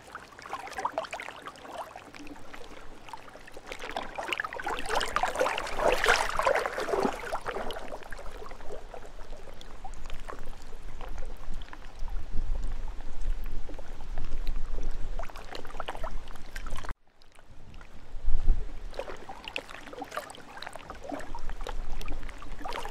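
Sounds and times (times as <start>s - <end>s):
lake waves lapping: 0.0s - 12.1s, 18.8s - 22.9s
wind rumble on microphone: 2.6s - 19.4s, 20.9s - 22.9s.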